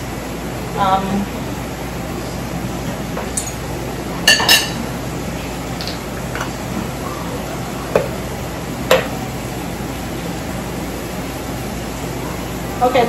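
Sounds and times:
dishes clinking: 3.2 - 3.6, 4.2 - 4.8, 8.9 - 9.2.

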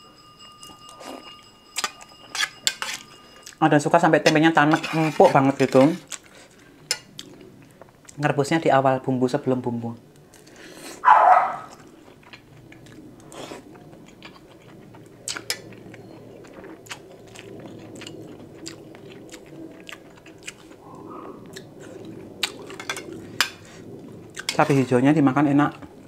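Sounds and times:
person chewing food: 6.0 - 8.2, 10.2 - 24.9.

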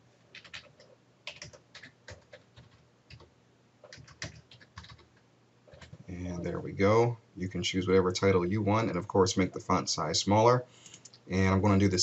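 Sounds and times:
typing on a keyboard: 0.3 - 6.0.

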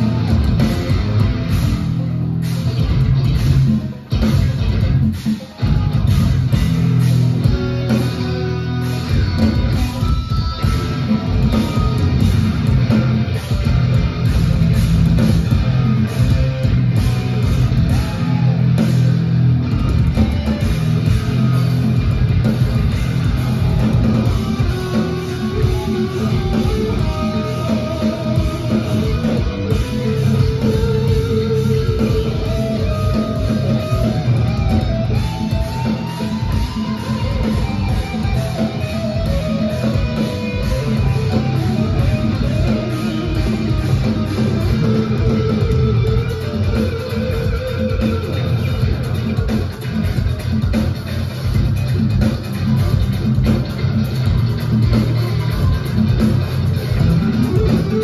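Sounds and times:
drums: 0.0 - 58.0
electric guitar: 0.0 - 58.0
live progressive metal music: 0.0 - 58.0.

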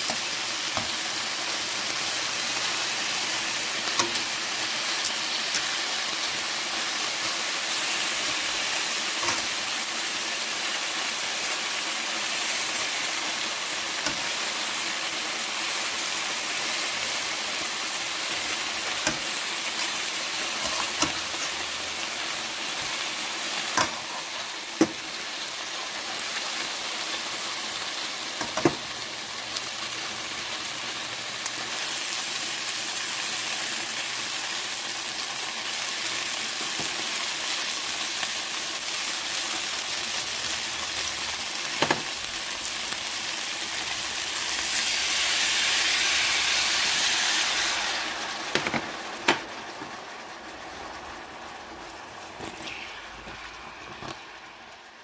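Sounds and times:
chicken wings sizzling in oil: 0.0 - 55.0
metal tongs clicking on pan: 9.2 - 9.6, 19.0 - 19.3, 23.7 - 24.1.

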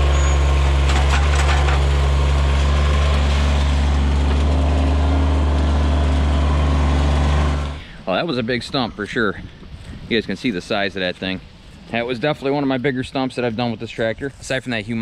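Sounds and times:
tractor diesel engine running: 0.0 - 8.4.

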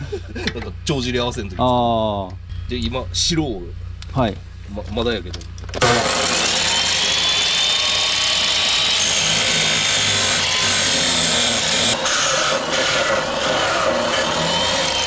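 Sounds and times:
chop saw grinding through metal pipe: 5.8 - 15.0.

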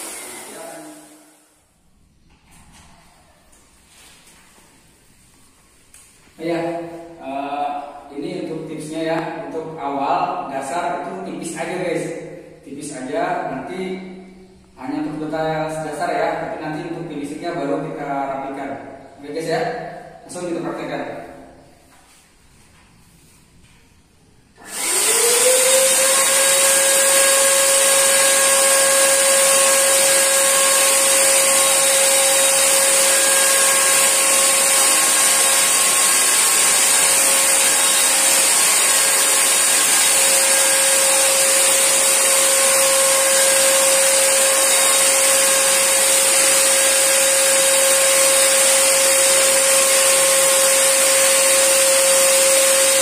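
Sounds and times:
paint sprayer motor whine: 0.0 - 1.6, 24.6 - 53.0.

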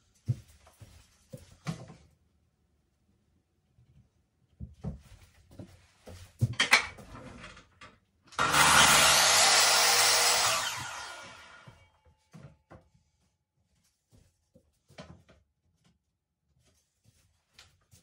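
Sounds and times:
mitre saw motor cutting: 8.4 - 11.8.

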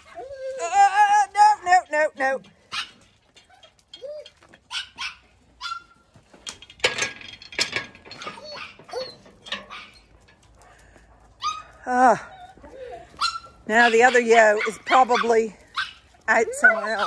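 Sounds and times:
dog whining and yipping: 0.0 - 1.1, 2.7 - 6.0, 8.1 - 10.2, 11.4 - 17.0.

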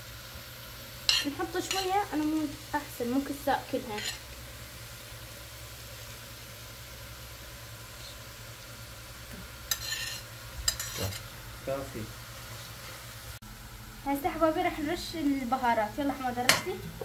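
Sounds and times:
faint sizzle: 0.0 - 17.0
fork scraping a plate: 3.9 - 4.2, 9.7 - 11.3.

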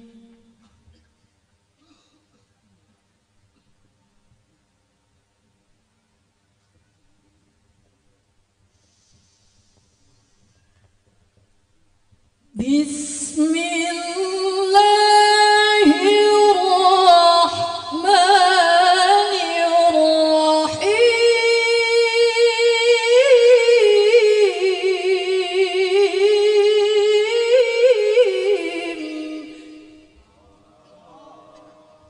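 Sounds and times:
woman reciting melodically: 0.0 - 1.0, 12.5 - 30.2.

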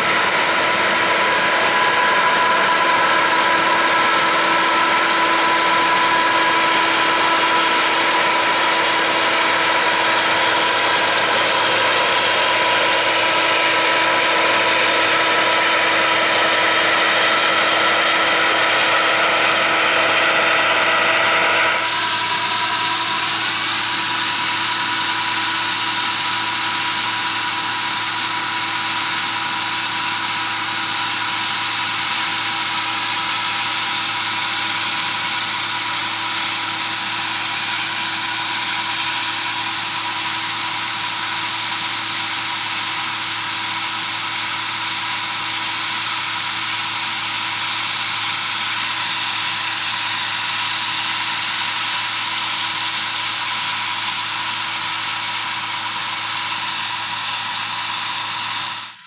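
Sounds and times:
steady whining tones: 0.0 - 41.4
combine harvester machine hum: 0.0 - 59.0.

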